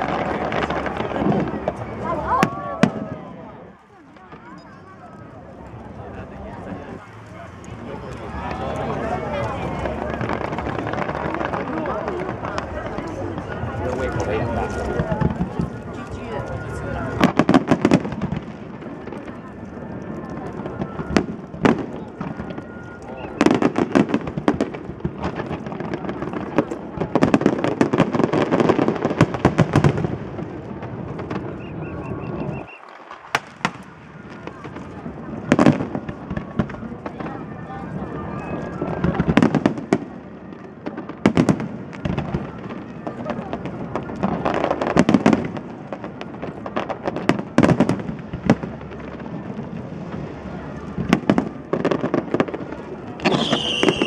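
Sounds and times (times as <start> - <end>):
fireworks bursting: 0.0 - 54.0
firework shells bursting: 53.2 - 54.0.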